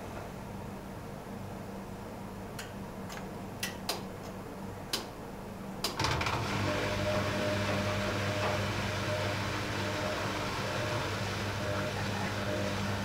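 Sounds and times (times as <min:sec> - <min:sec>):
washing machine drum turning: 0:05.9 - 0:13.0.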